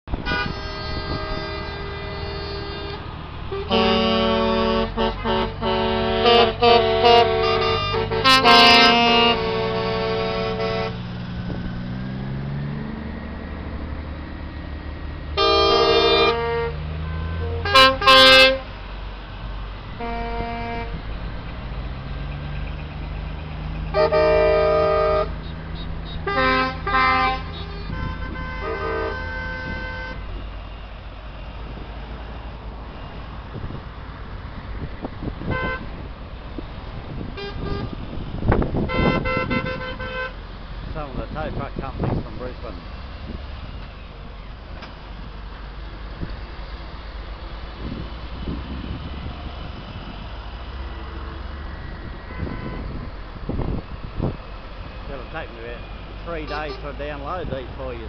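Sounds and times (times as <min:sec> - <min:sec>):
diesel engines droning: 0:00.0 - 0:58.0
truck air horns blasting: 0:00.1 - 0:11.3, 0:15.4 - 0:18.8, 0:19.9 - 0:21.4, 0:23.8 - 0:30.4, 0:35.4 - 0:36.0, 0:37.2 - 0:40.4, 0:52.1 - 0:58.0.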